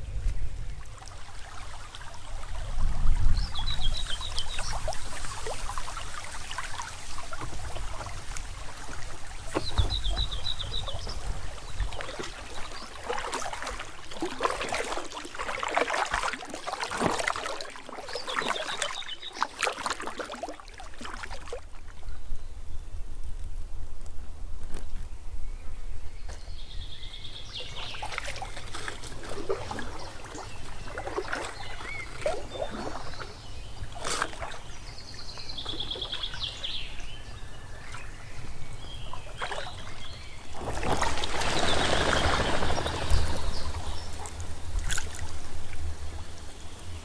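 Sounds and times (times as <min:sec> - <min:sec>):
water splashing and trickling: 0:00.0 - 0:22.2, 0:26.6 - 0:47.0
bird chirping: 0:09.5 - 0:11.3.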